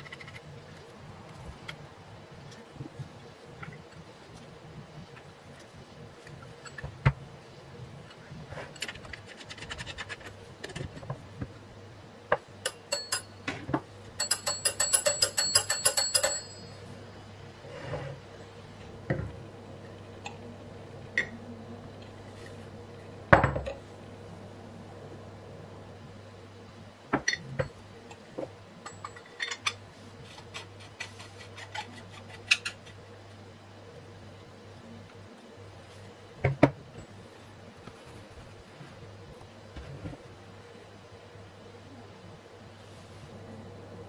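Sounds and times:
knocks of handling bell set: 12.7s - 13.3s, 14.2s - 16.8s
telephone bell ringing: 14.2s - 16.8s.

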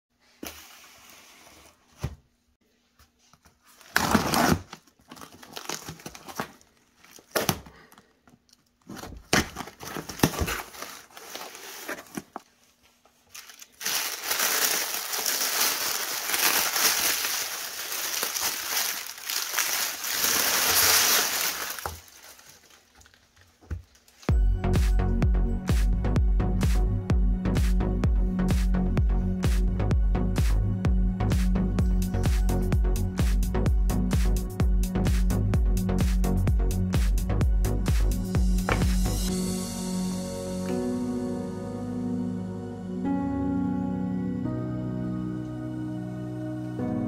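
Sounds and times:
packing crinkling and rustling: 3.6s - 24.3s.

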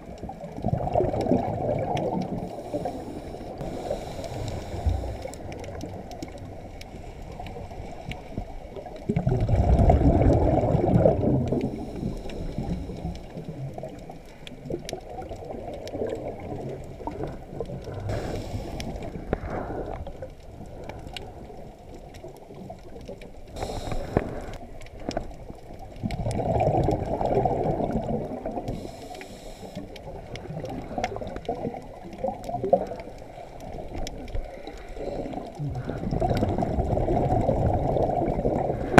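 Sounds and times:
exhaled air bubbling: 0.0s - 38.9s
steady underwater rumble: 0.0s - 38.9s
hissing regulator inhalations: 2.5s - 5.5s, 18.0s - 20.1s, 23.5s - 24.6s, 28.7s - 29.9s.

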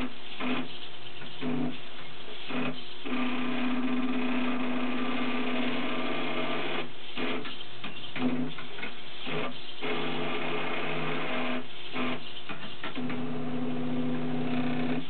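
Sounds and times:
strong motor hum: 13.0s - 15.0s.

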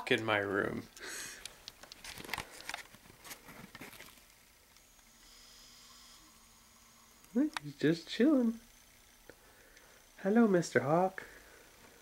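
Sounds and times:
faint steady hum: 0.0s - 12.0s
camera handling clicks and rustles: 1.4s - 5.0s.

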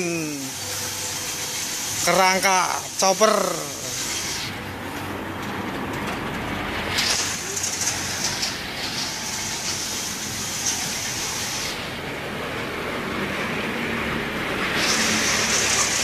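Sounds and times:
hiss: 0.0s - 4.7s, 6.8s - 12.1s, 13.3s - 16.0s
road traffic: 0.0s - 16.0s
truck engine hum: 0.0s - 16.0s.

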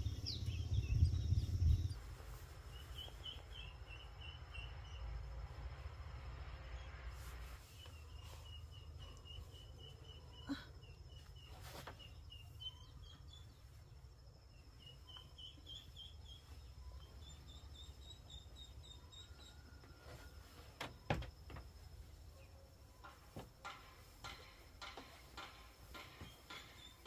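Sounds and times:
low rumble: 0.0s - 2.4s
bird chirping: 0.0s - 5.4s, 7.6s - 20.2s, 22.3s - 27.0s
sharp knocks: 23.0s - 27.0s.

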